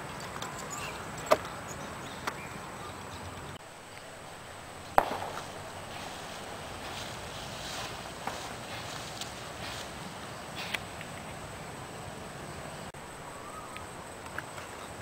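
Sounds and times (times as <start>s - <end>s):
faint outdoor background: 0.0s - 15.0s
airsoft rifle shots: 4.9s - 5.8s.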